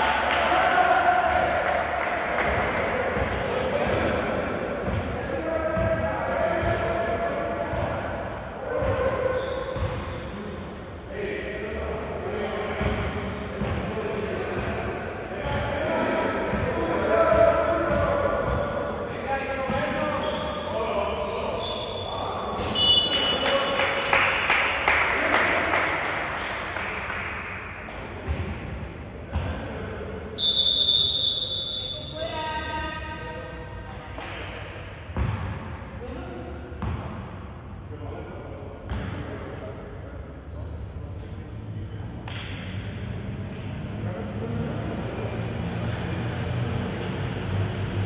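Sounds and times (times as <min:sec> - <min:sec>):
crowd noise and knocks: 0:00.0 - 0:10.2, 0:42.1 - 0:48.0
basketball bouncing on court: 0:05.8 - 0:06.0, 0:09.7 - 0:10.1, 0:12.8 - 0:13.9, 0:28.2 - 0:28.7, 0:35.2 - 0:35.7, 0:36.8 - 0:37.2, 0:38.9 - 0:39.2
basketball bouncing thuds: 0:35.2 - 0:35.6.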